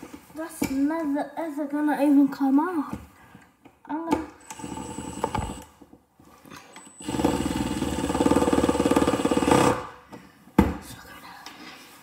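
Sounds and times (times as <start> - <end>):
impact driver hammering: 7.0 - 10.0.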